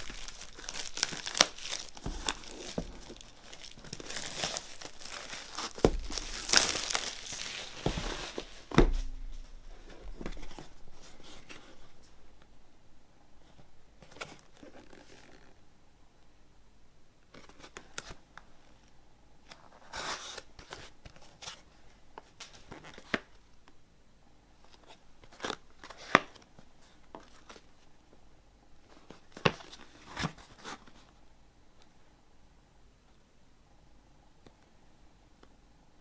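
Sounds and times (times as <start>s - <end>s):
cardboard rustling scrape: 0.0s - 11.8s.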